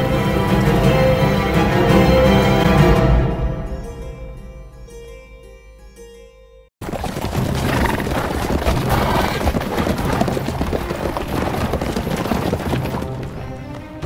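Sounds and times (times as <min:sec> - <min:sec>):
music: 0:00.0 - 0:06.7, 0:10.2 - 0:14.0
horses hooves beating: 0:06.8 - 0:14.0.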